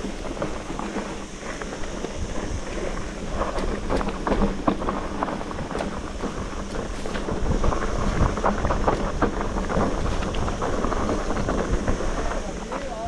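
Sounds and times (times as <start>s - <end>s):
bike rattling: 0.0s - 13.0s
tyres crunching over rocks: 0.0s - 13.0s
wind buffeting microphone: 0.0s - 13.0s.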